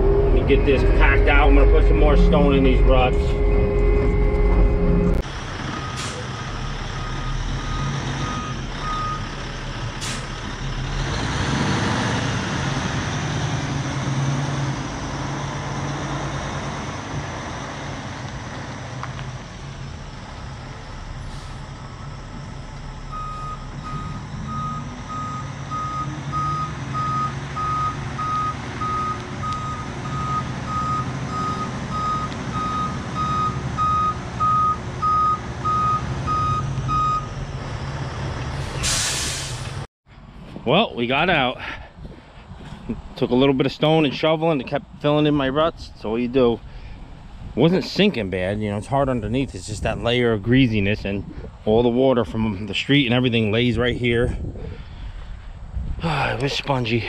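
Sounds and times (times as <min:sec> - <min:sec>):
diesel engine revving: 0:00.0 - 0:39.9
backup alarm beeping: 0:00.8 - 0:05.2, 0:07.0 - 0:09.3, 0:23.0 - 0:37.3
loud hiss: 0:38.8 - 0:39.9.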